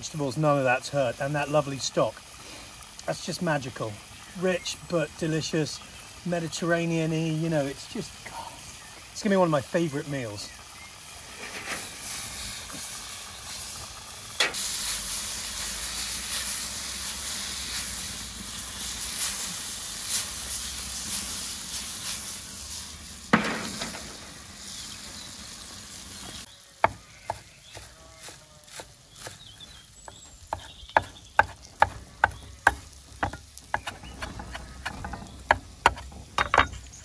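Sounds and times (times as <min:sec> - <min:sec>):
vegetables sizzling in a pan: 0:00.0 - 0:37.0
knife chopping on wooden board: 0:30.6 - 0:36.6.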